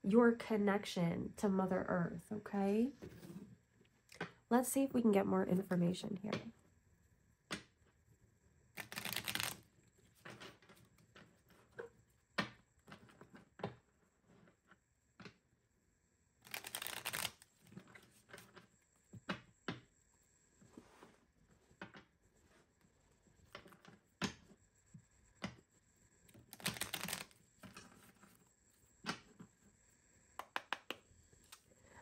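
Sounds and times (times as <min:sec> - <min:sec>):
cards being shuffled: 0:08.8 - 0:10.8, 0:16.4 - 0:18.6, 0:26.4 - 0:28.4
soft taps and clicks of cards: 0:30.4 - 0:31.6.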